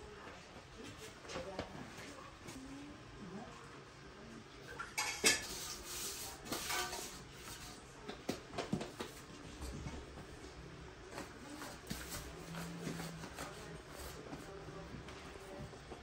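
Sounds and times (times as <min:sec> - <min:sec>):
metal tray and ladle clattering: 0:04.8 - 0:07.6.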